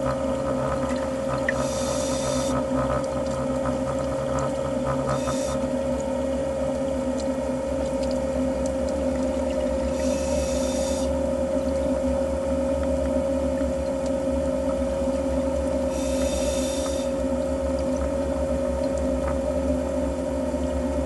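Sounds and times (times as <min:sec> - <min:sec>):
underwater droning hum: 0:00.0 - 0:21.0
scuba regulator hiss: 0:01.6 - 0:02.5, 0:10.0 - 0:11.1, 0:16.0 - 0:17.1.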